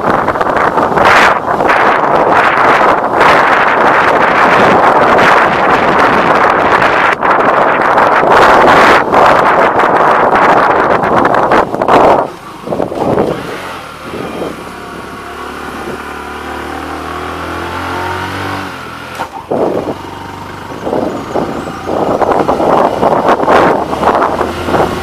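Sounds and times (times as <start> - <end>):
wind buffeting microphone: 0.0 - 25.0
motorcycle engine running under load: 9.0 - 17.8, 18.7 - 25.0.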